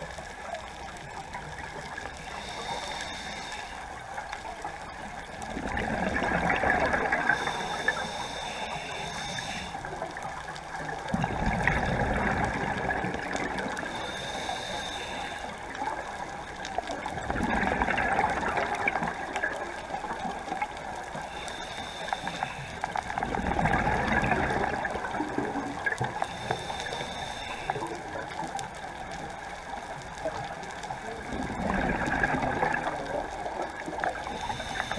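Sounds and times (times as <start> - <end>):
regulator hiss: 0.8 - 4.4, 7.1 - 10.2, 13.8 - 16.3, 21.1 - 22.9, 26.2 - 28.2, 34.2 - 34.9
exhaled bubbles rushing underwater: 4.2 - 8.2, 9.8 - 14.7, 15.6 - 21.4, 22.8 - 26.7, 27.8 - 34.9.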